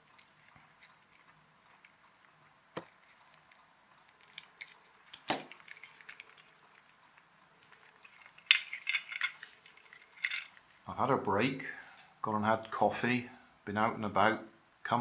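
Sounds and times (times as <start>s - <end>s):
plastic parts clicking: 2.8s - 7.0s, 7.6s - 10.8s.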